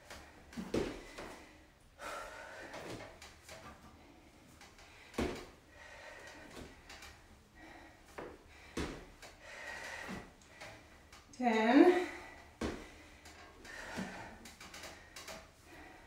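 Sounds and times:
feet landing on bench and floor: 0.1s - 1.5s, 5.0s - 5.6s, 8.1s - 9.3s, 12.6s - 13.0s.

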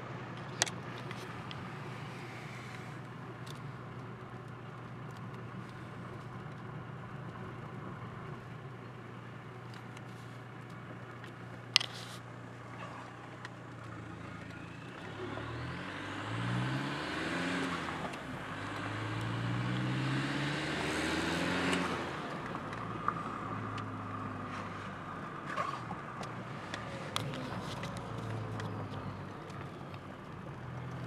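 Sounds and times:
diesel engine accelerating: 12.4s - 31.0s.

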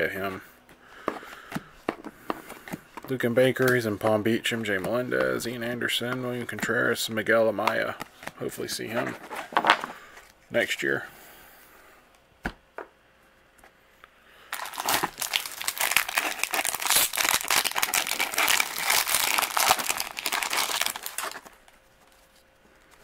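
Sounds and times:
foil wrapper crinkling and tearing: 14.5s - 21.8s.

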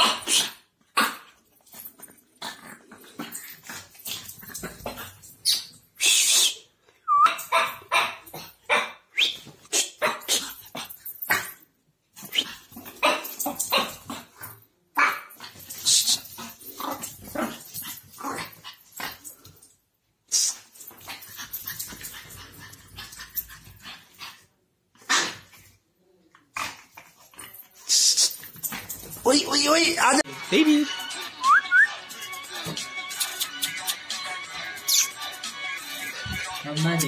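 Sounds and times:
puppy barking and yipping: 7.3s - 9.0s.

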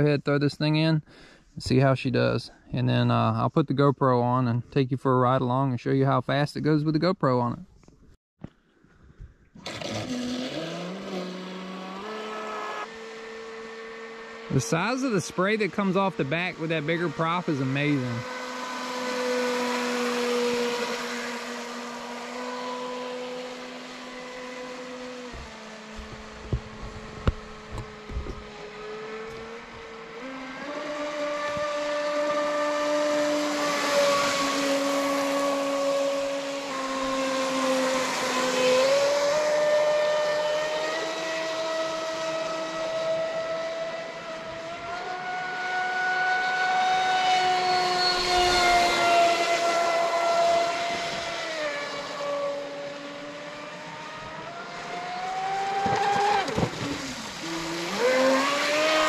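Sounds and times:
electric motor whining: 44.0s - 59.0s.

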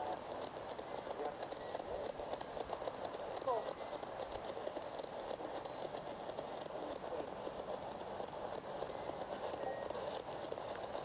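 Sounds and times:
radio static hiss: 0.0s - 11.0s
rapid radio clicks: 0.0s - 11.0s.

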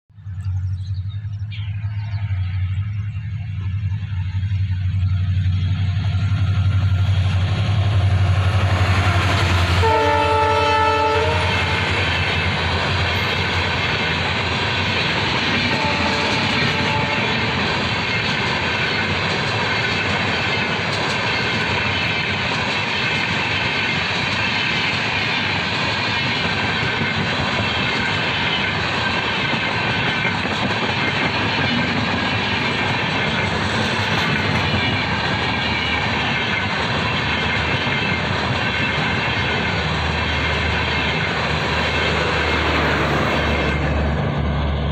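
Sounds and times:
diesel locomotive engine hum: 0.1s - 44.9s
train wheels clacking on rails: 2.6s - 44.9s
train horn blast: 8.8s - 12.0s, 15.6s - 17.6s.

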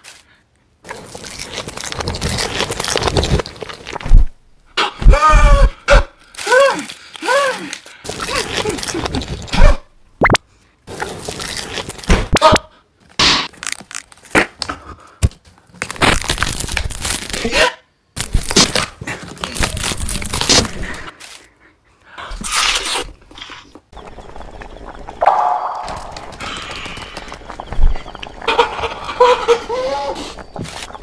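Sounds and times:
cardboard being torn and chewed: 0.9s - 4.3s, 11.0s - 12.1s, 13.5s - 14.6s, 15.8s - 17.6s, 18.2s - 21.5s.

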